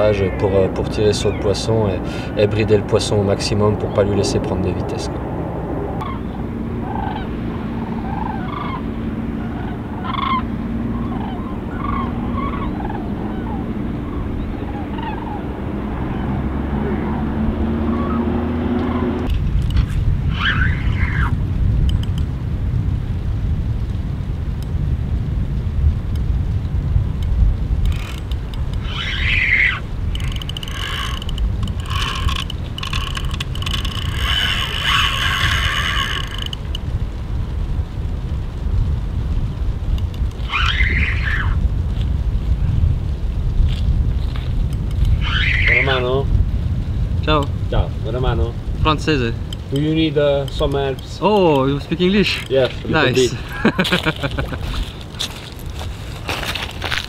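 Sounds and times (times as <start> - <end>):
steady low hum: 0.0 - 20.4
low rumble: 0.0 - 57.0
flock of birds calling: 6.0 - 19.3, 20.3 - 21.3, 28.8 - 36.7, 40.3 - 41.6, 45.0 - 46.1
fishing reel whirring and clicking: 27.9 - 36.7.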